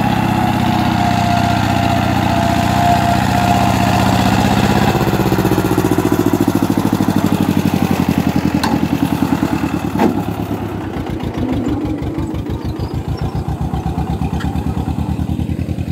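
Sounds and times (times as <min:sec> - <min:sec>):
tractor diesel engine under load: 0:00.0 - 0:15.9.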